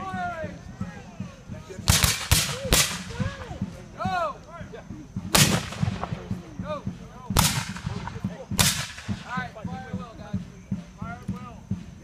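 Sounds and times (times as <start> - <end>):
musket fire: 1.8 - 3.5, 5.3 - 6.4, 7.3 - 9.3.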